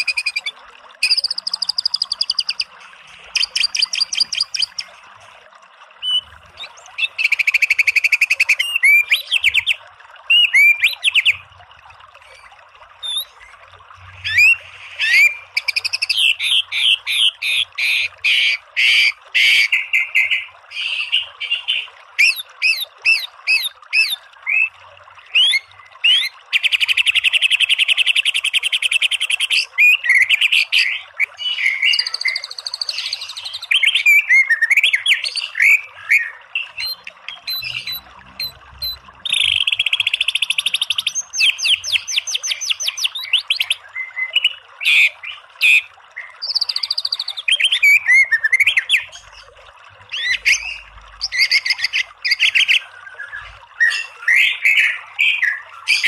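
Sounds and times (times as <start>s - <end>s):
bird singing: 30.8s - 49.4s.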